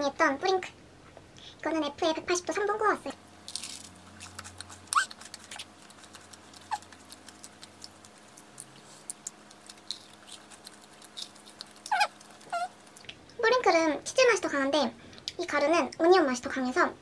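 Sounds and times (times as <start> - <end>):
crunchy chewing: 3.3 - 13.2
squeaky mouth noises: 4.1 - 13.1.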